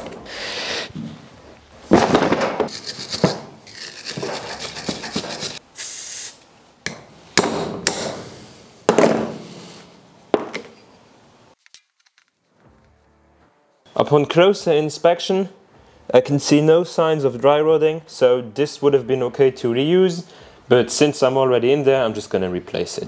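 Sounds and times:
short high hiss: 5.6s - 6.5s.

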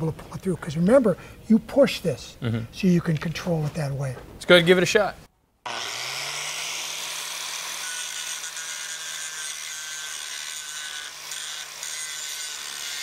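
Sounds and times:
angle grinder grinding metal: 5.7s - 13.0s.

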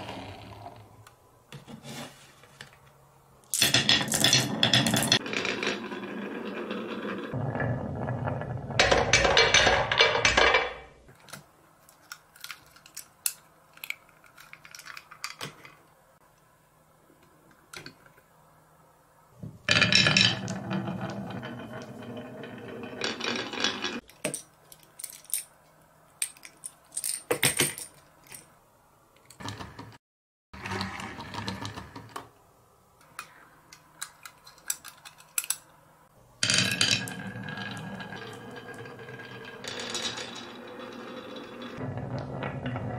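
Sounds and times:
marbles rolling on wooden track: 3.5s - 10.9s, 19.7s - 24.0s, 36.4s - 42.9s
toy trucks clicking: 33.0s - 35.8s.

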